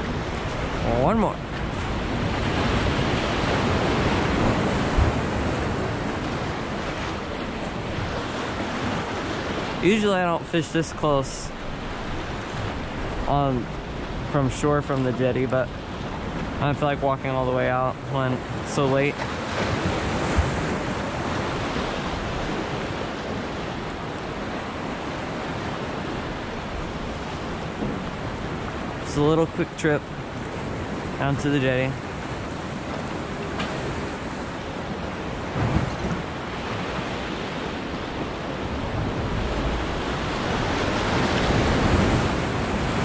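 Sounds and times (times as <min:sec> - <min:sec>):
wind on microphone: 0:00.0 - 0:09.9
surf washing against rocks: 0:00.0 - 0:43.0.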